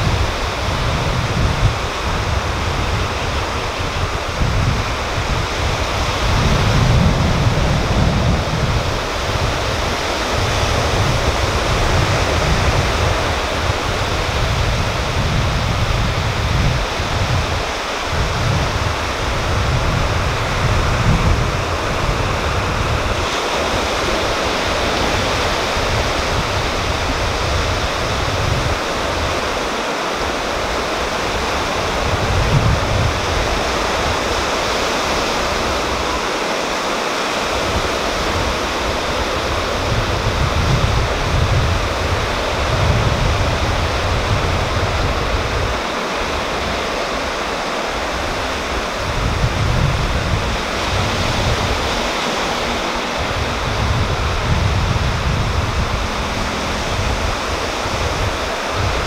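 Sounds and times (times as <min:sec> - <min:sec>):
ocean waves breaking on a beach: 0:00.0 - 0:59.0.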